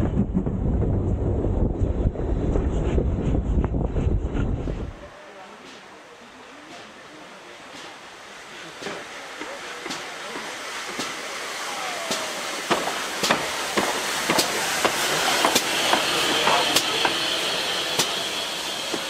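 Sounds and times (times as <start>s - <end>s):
steam locomotive passing: 2.2s - 19.0s
steam hissing: 4.9s - 19.0s.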